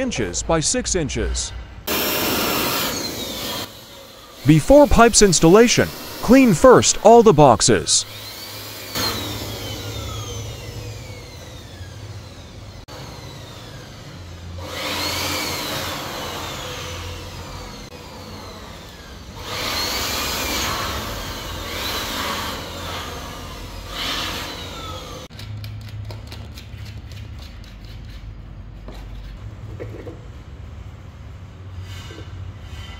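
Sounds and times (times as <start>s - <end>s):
electric blower motor whine: 1.9s - 5.0s, 5.8s - 6.3s, 8.0s - 25.3s.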